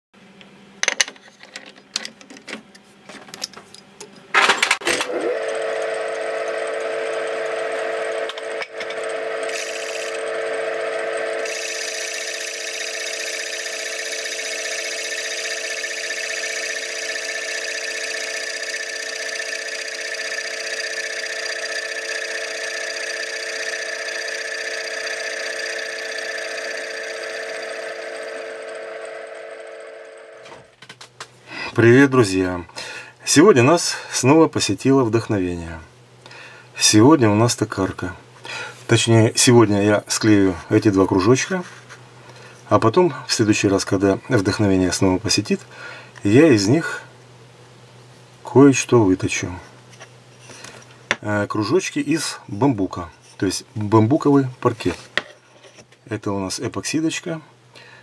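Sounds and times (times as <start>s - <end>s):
hissing metal cutting noise: 4.9s - 29.4s
lathe humming and whining: 4.9s - 30.6s.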